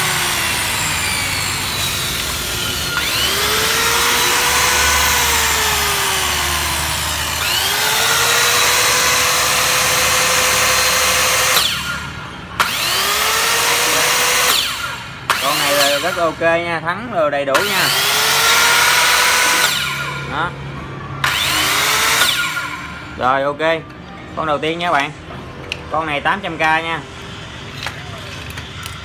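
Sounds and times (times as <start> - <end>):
circular saw motor whine: 0.0 - 16.4, 21.2 - 23.1.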